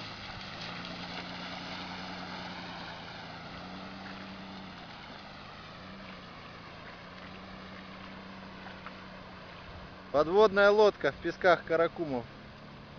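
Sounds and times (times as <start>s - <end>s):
car engine running: 0.0s - 12.9s.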